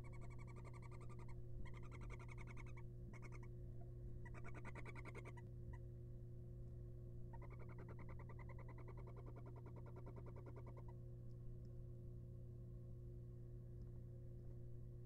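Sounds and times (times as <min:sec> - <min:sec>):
pulsed trilling calls: 0:00.0 - 0:03.5, 0:04.2 - 0:05.4, 0:07.3 - 0:10.9
steady low hum: 0:00.0 - 0:15.0.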